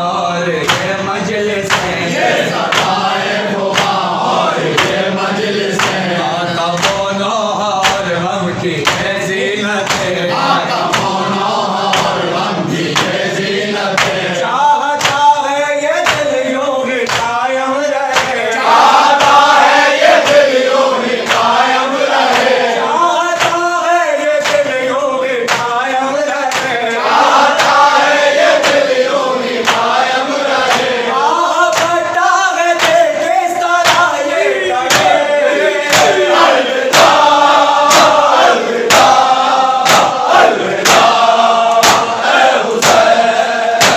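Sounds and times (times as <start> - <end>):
men chanting in chorus: 0.0 - 43.9
hand slaps on chest: 1.7 - 2.0, 2.6 - 3.0, 3.7 - 4.0, 4.7 - 5.0, 5.8 - 6.0, 13.9 - 14.2, 15.0 - 15.2, 17.0 - 17.3, 20.2 - 20.5, 24.4 - 24.7, 26.5 - 26.8, 32.8 - 33.0, 35.9 - 36.2, 37.9 - 39.2, 39.8 - 43.1.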